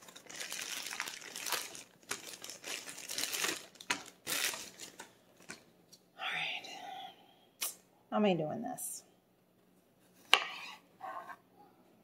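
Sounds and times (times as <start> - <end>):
plastic packaging crinkling: 0.0 - 5.6.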